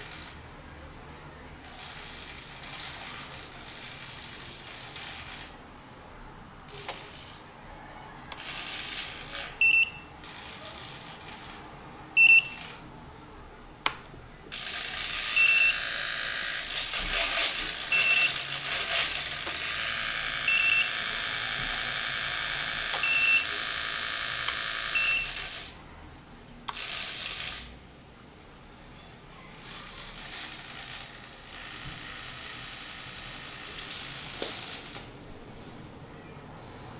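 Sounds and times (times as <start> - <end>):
short high beeps: 9.6 - 10.1, 12.2 - 12.6, 17.9 - 18.4.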